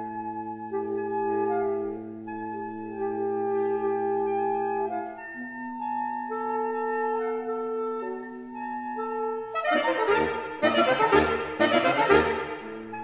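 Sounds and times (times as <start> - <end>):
saxophone quartet playing chords: 9.5 - 13.0.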